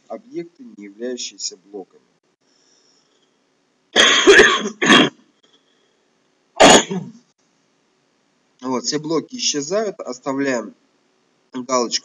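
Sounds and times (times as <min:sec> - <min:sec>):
person coughing: 0:04.0 - 0:05.2, 0:06.6 - 0:07.2.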